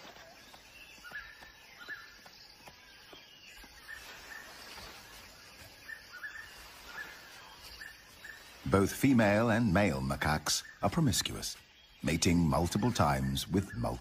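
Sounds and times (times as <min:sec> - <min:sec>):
bird chirps: 0:00.0 - 0:14.0
faint forest ambience: 0:00.0 - 0:14.0.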